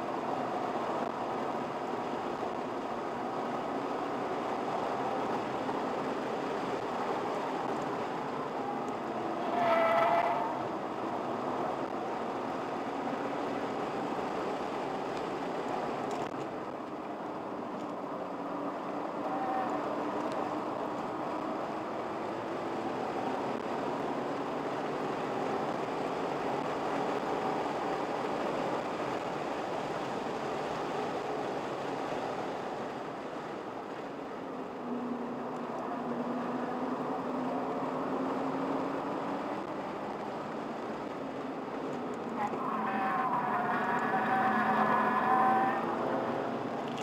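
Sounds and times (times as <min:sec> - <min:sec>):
car engine accelerating: 0:41.8 - 0:47.0.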